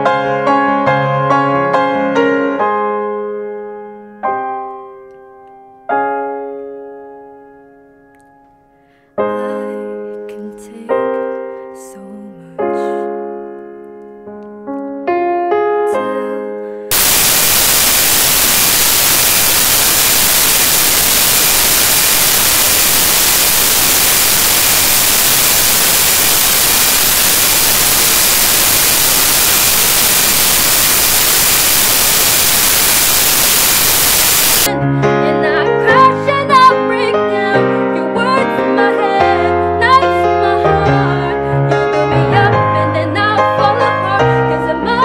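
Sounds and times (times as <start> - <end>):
woman singing: 9.3 - 13.1, 15.9 - 16.6, 34.7 - 45.0
digital static hiss: 16.9 - 34.7.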